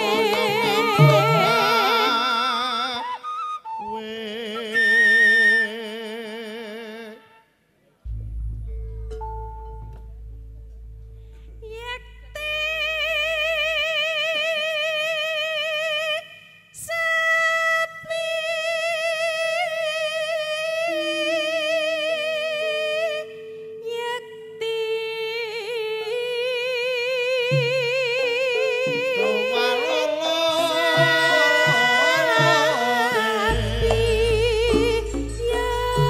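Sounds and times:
woman singing long high notes: 0:00.0 - 0:07.4, 0:11.6 - 0:36.0
soft steady low tones: 0:07.7 - 0:36.0.

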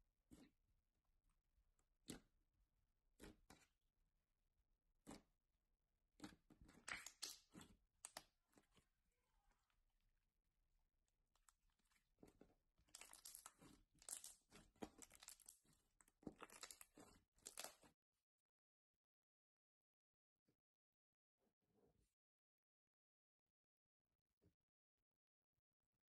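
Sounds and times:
slime crackling and squishing: 0:06.2 - 0:09.7, 0:11.4 - 0:17.9.

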